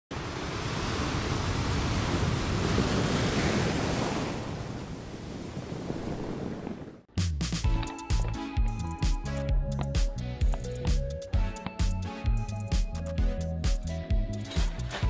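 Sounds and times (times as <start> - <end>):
ocean surf: 0.1 - 7.1.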